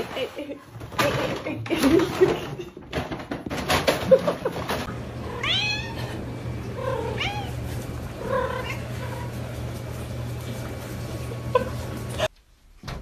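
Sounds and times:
cat meowing: 5.3 - 6.1, 6.8 - 7.6.

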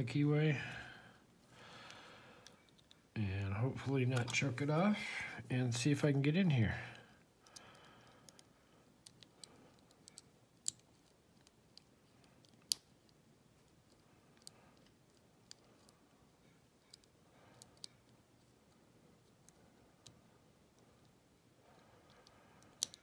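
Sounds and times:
lock pick clicking in lock: 22.7 - 23.0.

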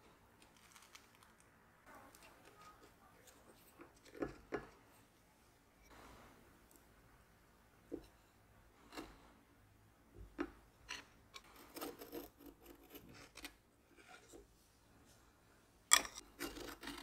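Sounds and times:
palette knife scraping: 10.9 - 14.4, 16.3 - 17.0.

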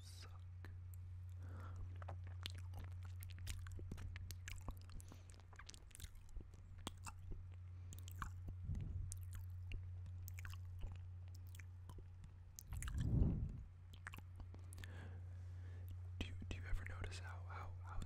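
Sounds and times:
steady low hum: 0.0 - 18.0
wet mouth sounds: 1.5 - 15.0.

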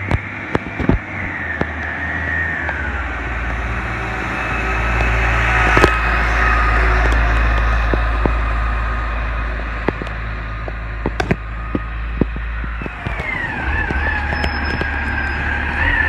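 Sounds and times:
garbage truck diesel engine running: 0.0 - 16.0
high whine gliding down: 0.0 - 16.0
scattered clicks: 9.8 - 15.1.

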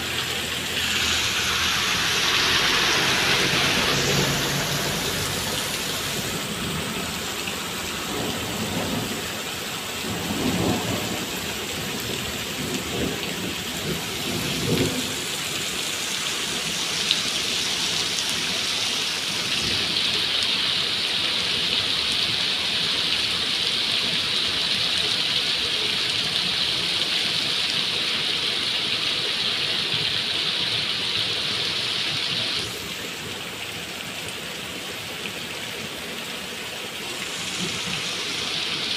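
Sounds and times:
thunder rumbling: 0.0 - 7.2, 10.0 - 15.8
heavy rain on pavement: 0.0 - 38.9.

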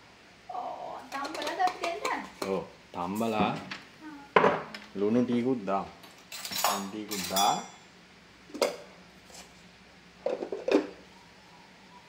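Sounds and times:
pot and metal utensils clinking: 6.0 - 7.8.

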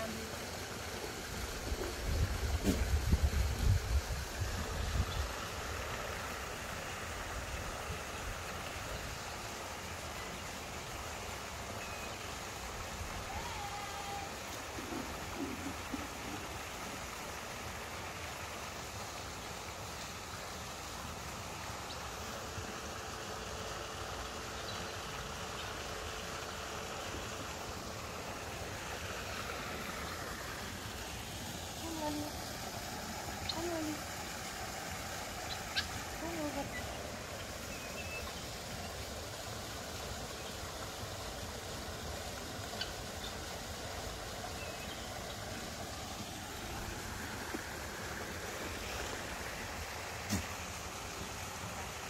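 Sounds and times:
wind on microphone: 1.9 - 5.3.

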